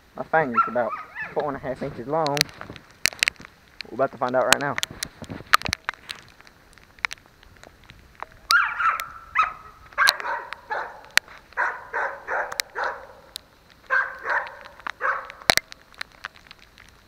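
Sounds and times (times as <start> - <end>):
dogs barking: 0.5 - 1.4, 8.5 - 15.6
sharp clicks: 2.2 - 17.0.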